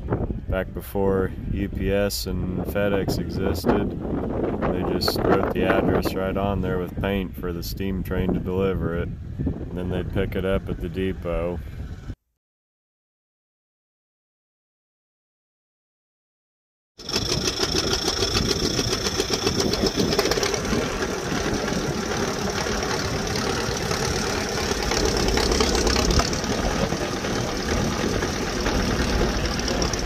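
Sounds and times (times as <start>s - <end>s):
tractor engine idling: 17.0s - 30.0s.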